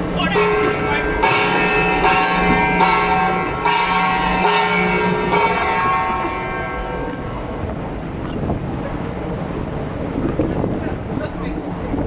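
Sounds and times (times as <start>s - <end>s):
brass gong struck with a stick: 0.4s - 7.4s.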